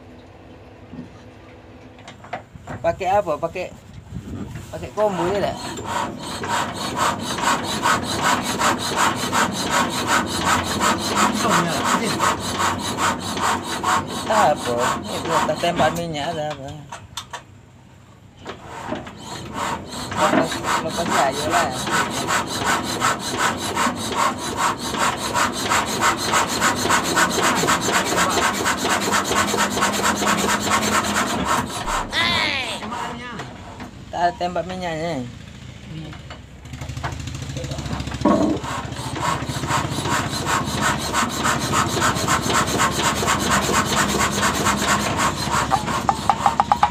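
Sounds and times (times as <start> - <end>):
diesel engine cranking: 36.4 - 46.9.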